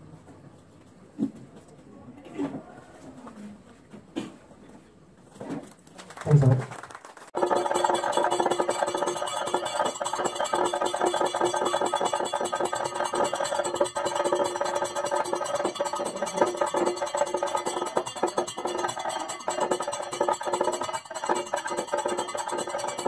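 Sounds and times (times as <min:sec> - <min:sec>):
rapid dense drumming: 0:07.4 - 0:23.0
steady metallic ringing: 0:07.4 - 0:23.0.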